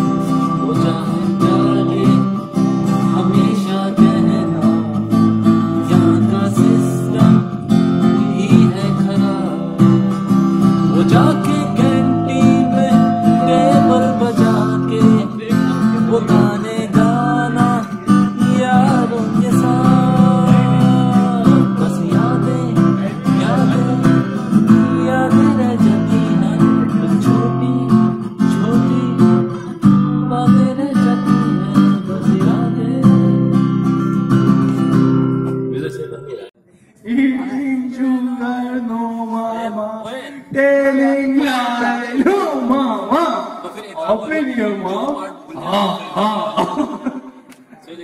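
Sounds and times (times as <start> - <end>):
man singing: 0.0 - 33.6, 36.1 - 43.0
acoustic guitar strumming: 0.0 - 36.5.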